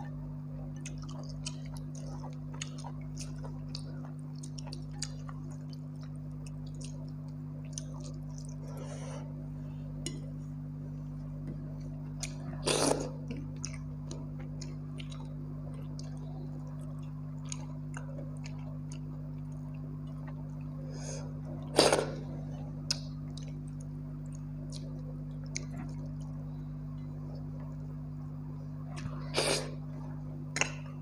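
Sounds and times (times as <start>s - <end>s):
steady low hum: 0.0s - 31.0s
soft mouth clicks: 22.9s - 26.2s.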